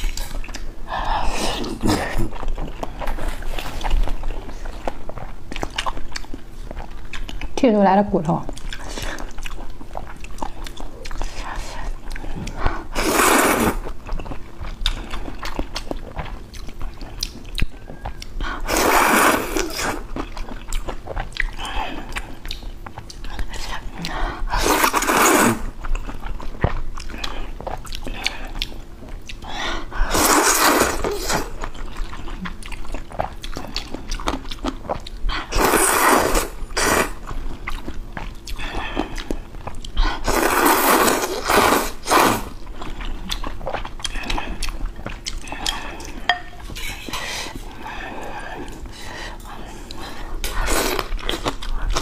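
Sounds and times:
soft chewing: 0.0s - 7.6s, 8.4s - 12.9s, 13.8s - 18.6s, 19.6s - 35.5s, 36.8s - 41.8s, 42.5s - 52.0s
noodle slurping: 12.9s - 13.9s, 18.6s - 20.1s, 24.5s - 25.7s, 30.0s - 31.6s, 35.4s - 37.2s, 40.2s - 42.6s.

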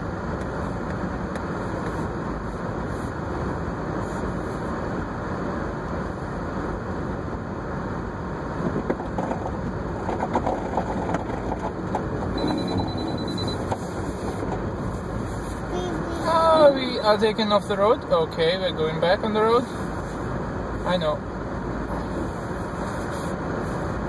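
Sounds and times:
tyres rumbling on snow: 0.0s - 24.0s
short high beep: 12.4s - 13.7s.

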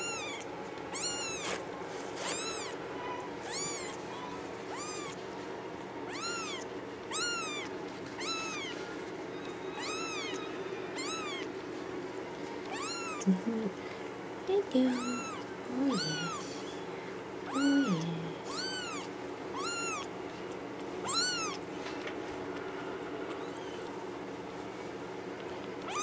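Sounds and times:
kitten mewing: 0.0s - 1.6s, 2.2s - 5.2s, 6.1s - 8.8s, 9.8s - 11.5s, 12.7s - 13.8s, 14.6s - 16.7s, 17.5s - 20.1s, 21.0s - 21.6s.

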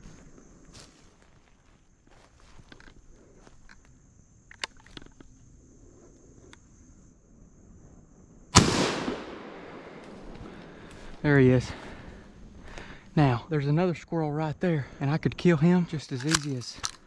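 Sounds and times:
high insect drone: 0.0s - 17.0s
shotgun shot echoing: 8.6s - 10.4s.

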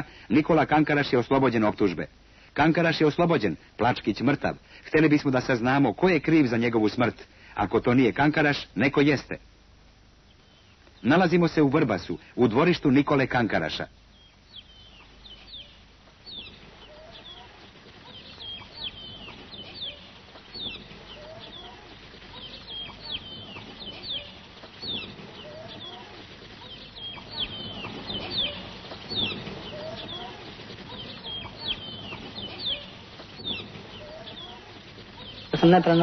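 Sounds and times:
chicks peeping: 14.1s - 36.0s
young chickens clucking: 14.1s - 36.0s.

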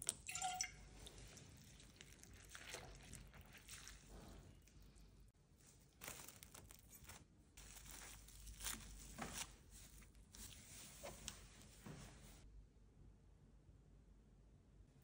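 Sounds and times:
wet petals rustling in water: 0.0s - 12.4s.

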